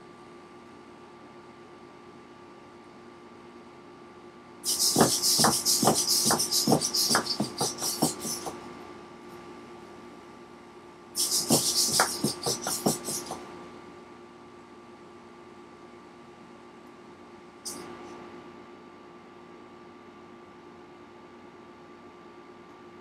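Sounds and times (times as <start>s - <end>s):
robot feet knocking on wooden floor: 4.7s - 8.5s, 11.2s - 13.4s.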